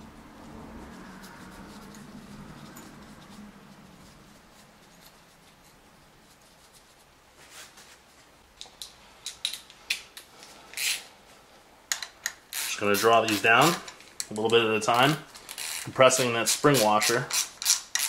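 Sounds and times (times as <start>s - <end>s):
small nuts clicking on metal: 15.4s - 18.0s.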